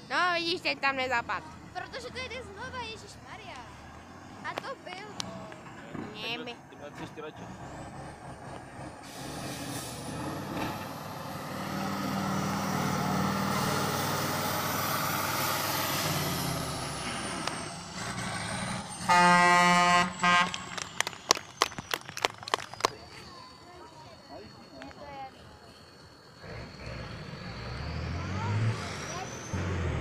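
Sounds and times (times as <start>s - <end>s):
truck engine working hard: 0.0s - 30.0s
air horn: 19.0s - 20.7s.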